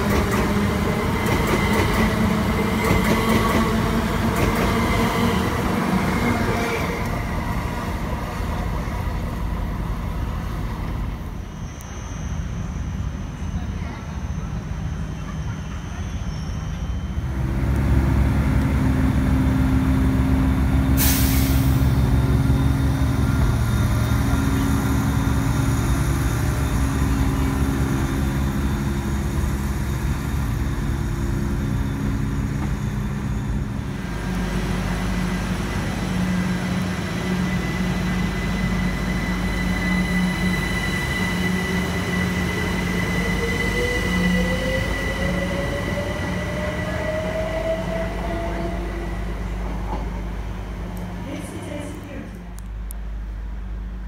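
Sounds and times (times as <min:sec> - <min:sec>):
train passing rumble: 0:00.0 - 0:54.0
train traction motor whine: 0:16.4 - 0:51.2
brief hiss: 0:21.0 - 0:21.9.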